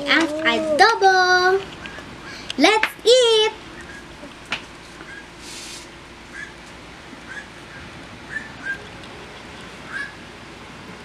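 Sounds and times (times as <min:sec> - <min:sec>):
brief hiss: 0:05.4 - 0:05.9.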